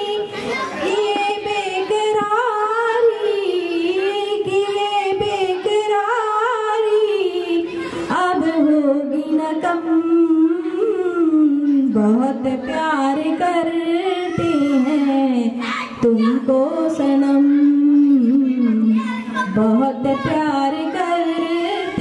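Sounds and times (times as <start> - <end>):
woman singing slow melody: 0.0 - 22.0.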